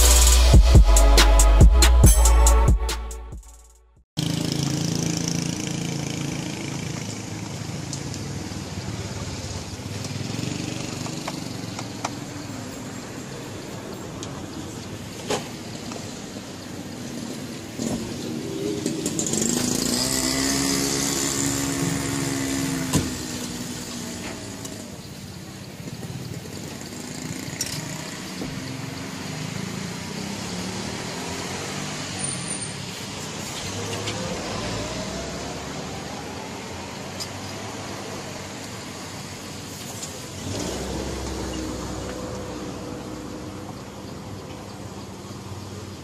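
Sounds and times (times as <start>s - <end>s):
vehicle speeding up: 17.8s - 24.8s, 33.3s - 37.1s, 40.4s - 43.8s
heavy vehicle engine with hiss: 28.0s - 35.2s, 36.9s - 44.4s.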